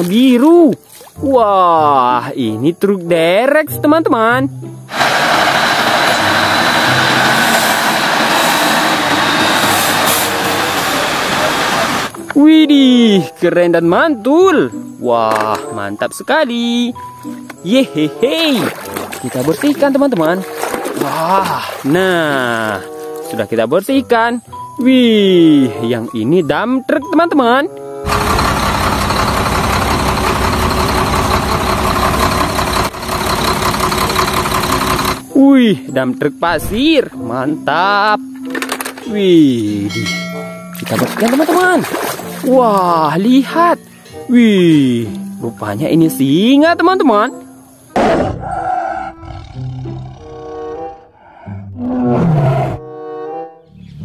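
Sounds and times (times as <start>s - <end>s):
tow truck driving slowly past: 4.9s - 12.1s, 28.0s - 35.3s.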